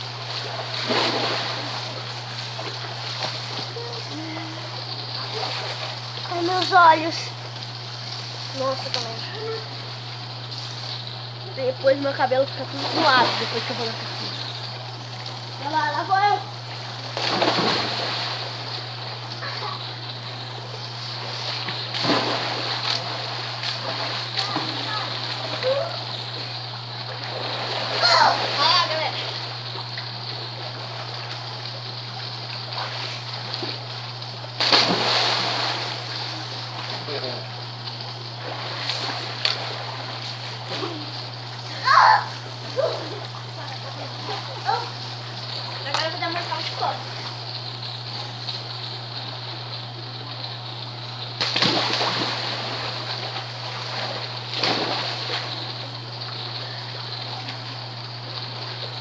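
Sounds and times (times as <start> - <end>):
water churning and lapping: 0.0 - 11.4, 12.0 - 59.0
people splashing into pool: 0.2 - 6.9, 12.7 - 14.3, 17.0 - 19.9, 21.2 - 26.5, 27.1 - 29.5, 34.6 - 37.1, 38.4 - 43.5, 51.4 - 57.8
loud water splash: 0.4 - 2.0, 17.2 - 18.6, 21.9 - 25.0, 34.6 - 36.1, 51.4 - 53.1, 53.8 - 55.5.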